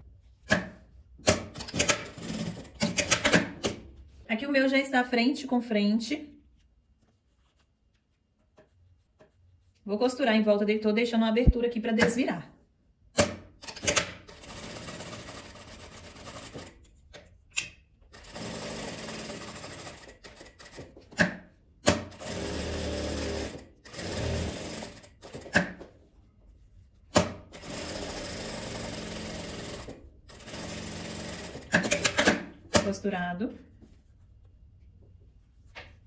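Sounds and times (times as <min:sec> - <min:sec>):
sewing machine stitching: 0:13.6 - 0:16.8, 0:18.1 - 0:20.9, 0:21.9 - 0:25.7, 0:27.5 - 0:32.5.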